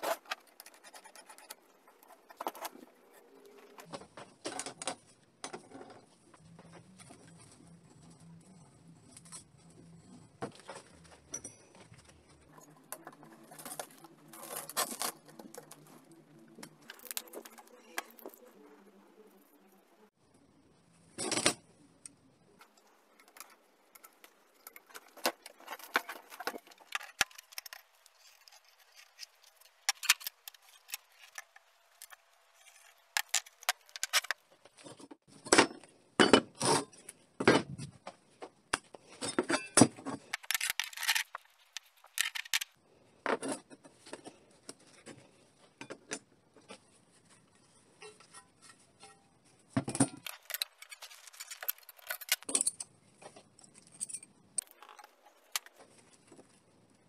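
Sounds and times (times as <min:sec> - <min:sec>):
metal clinks and knocks: 0:11.0 - 0:13.1.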